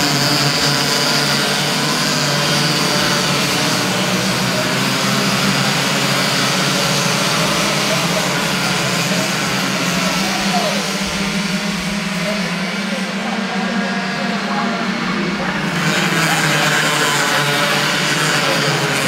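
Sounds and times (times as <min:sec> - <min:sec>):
racing kart engines buzzing: 0:00.0 - 0:19.0.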